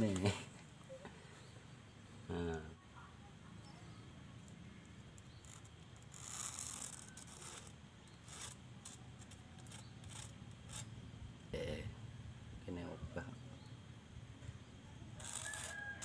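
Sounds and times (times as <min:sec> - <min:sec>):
scraping and rubbing on coconut shell: 0:05.2 - 0:10.9, 0:15.2 - 0:16.0.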